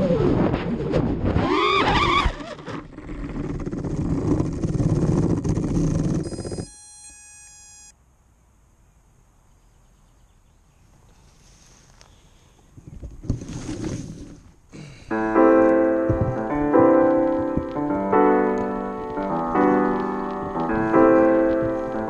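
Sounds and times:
electronic beeps stepping in pitch: 0:06.3 - 0:07.9.

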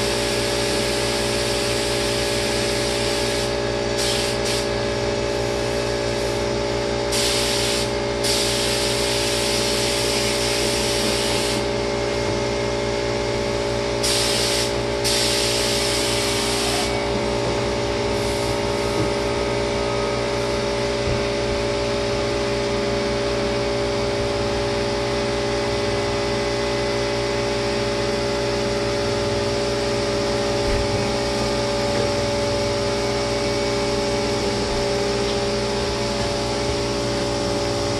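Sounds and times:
spray gun hissing: 0:00.0 - 0:04.8, 0:07.1 - 0:11.7, 0:14.0 - 0:17.0, 0:18.2 - 0:18.8
machine humming: 0:10.6 - 0:37.9.

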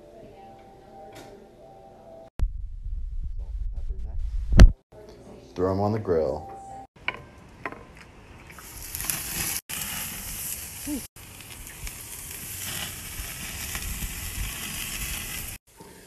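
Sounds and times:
steaks sizzling on grill: 0:08.7 - 0:15.6.

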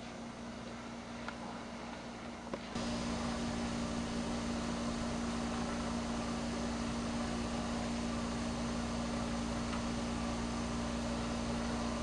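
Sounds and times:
steady low hum: 0:00.0 - 0:12.0
even hiss: 0:02.8 - 0:12.0.

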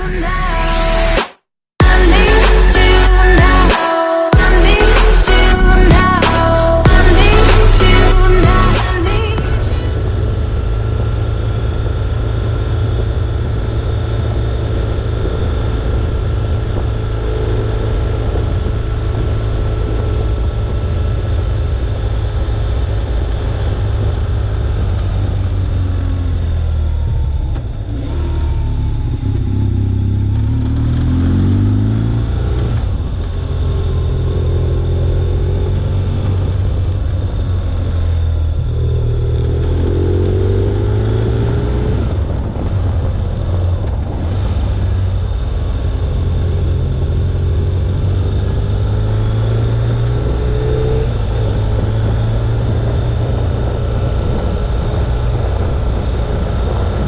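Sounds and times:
road noise: 0:01.8 - 0:57.0
motorcycle engine accelerating: 0:04.4 - 0:57.0
wind noise: 0:31.0 - 0:57.0.

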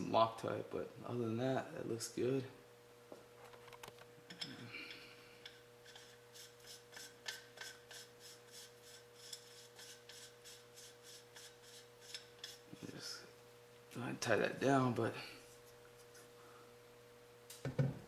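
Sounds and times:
metal threads rasping: 0:04.3 - 0:13.0.

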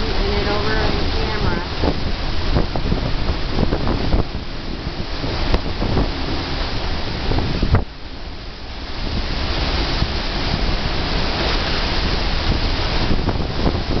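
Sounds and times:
rain: 0:00.0 - 0:14.0
strong wind gusting: 0:00.0 - 0:14.0.

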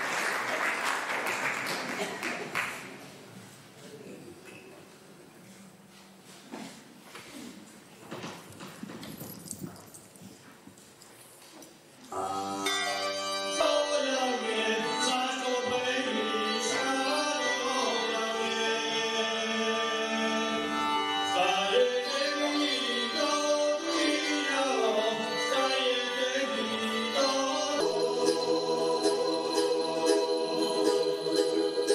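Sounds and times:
low hall noise: 0:00.0 - 0:31.9
folk music melody over drone: 0:12.2 - 0:31.9.

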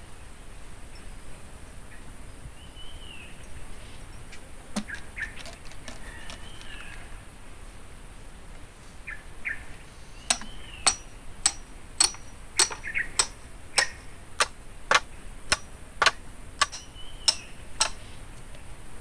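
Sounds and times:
small birds chirping: 0:01.9 - 0:07.2, 0:09.0 - 0:14.2, 0:16.0 - 0:18.5
bamboo splitting: 0:04.8 - 0:07.0, 0:10.3 - 0:18.0
hammer striking blade: 0:10.3 - 0:18.0.

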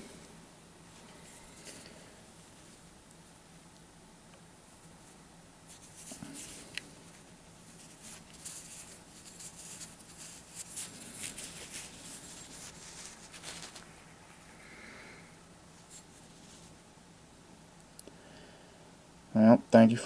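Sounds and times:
gloved fingers rubbing coin: 0:05.7 - 0:14.0.

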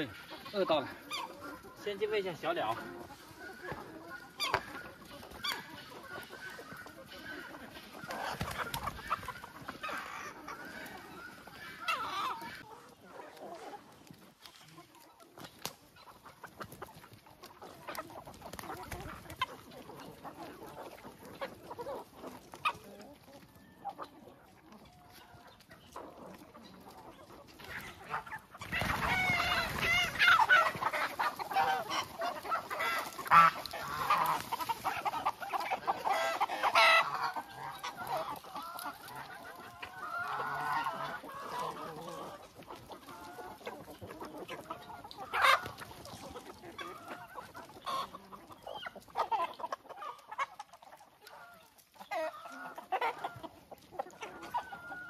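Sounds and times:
chickens clucking: 0:00.0 - 0:55.0
hen squawking frantically: 0:27.8 - 0:38.4.

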